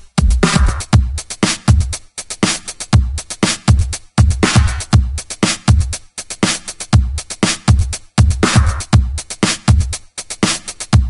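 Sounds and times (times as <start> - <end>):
deep kick drums: 0.0 - 1.9
electronic music: 0.0 - 2.0
snare and hi-hat hits: 0.0 - 11.0.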